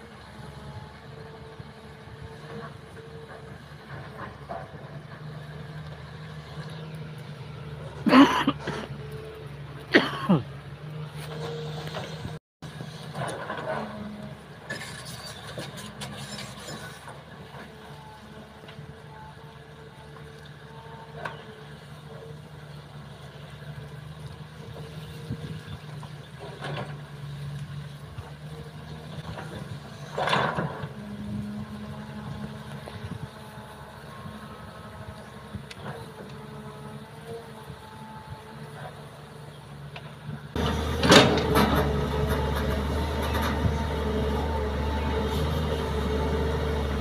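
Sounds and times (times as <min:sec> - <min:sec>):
excavator diesel engine running: 0:00.0 - 0:47.0.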